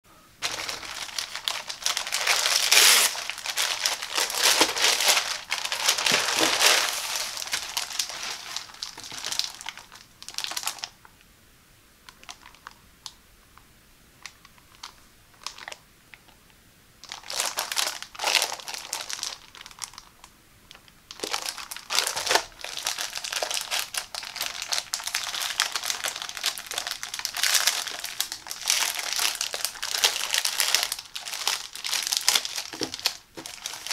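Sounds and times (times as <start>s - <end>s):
plastic packaging crinkling: 0.4s - 11.0s, 12.1s - 12.8s, 14.2s - 15.8s, 17.0s - 33.9s.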